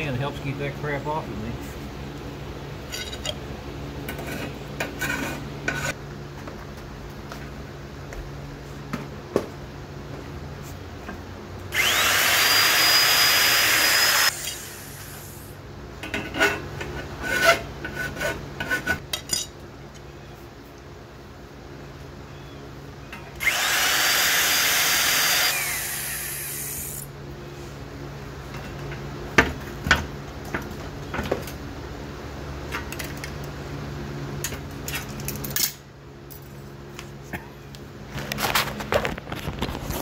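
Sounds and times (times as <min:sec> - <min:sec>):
fan humming: 0:00.0 - 0:40.0
scraping and knocking on metal: 0:04.0 - 0:06.0, 0:16.0 - 0:19.1
electric power tool whining: 0:11.7 - 0:15.5, 0:23.4 - 0:27.1.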